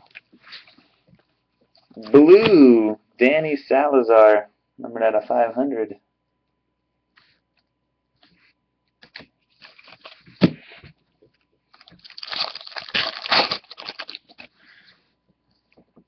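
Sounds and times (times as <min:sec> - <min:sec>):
foil pack crinkling: 0:09.1 - 0:10.5, 0:11.7 - 0:14.9.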